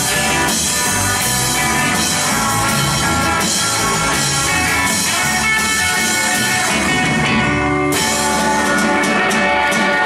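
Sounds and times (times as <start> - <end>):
live rock band playing: 0.0 - 10.0.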